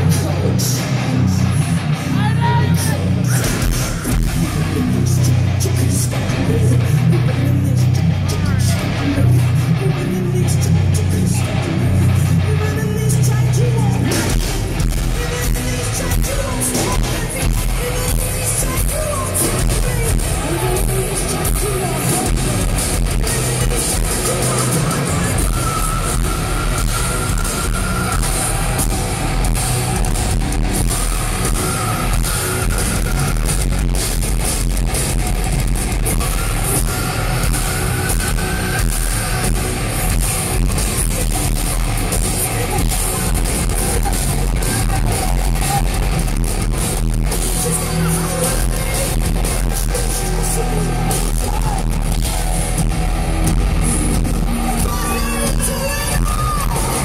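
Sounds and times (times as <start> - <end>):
person singing: 0.0 - 33.9
heavy metal band playing live: 0.0 - 57.0.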